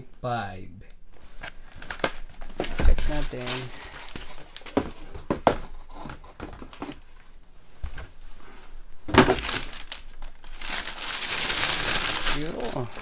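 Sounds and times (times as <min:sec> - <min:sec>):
tissue paper rustling and crinkling: 0:01.2 - 0:05.0, 0:08.0 - 0:13.0.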